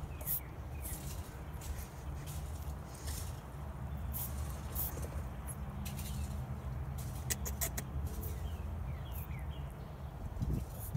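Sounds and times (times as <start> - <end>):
rabbit sneezing: 7.2 - 8.4.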